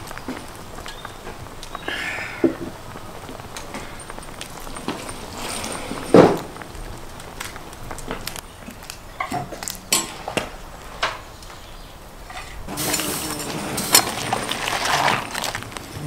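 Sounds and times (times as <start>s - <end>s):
steady hiss: 0.0s - 16.0s
metal skimmer scraping a cauldron: 3.7s - 6.7s, 12.3s - 16.0s.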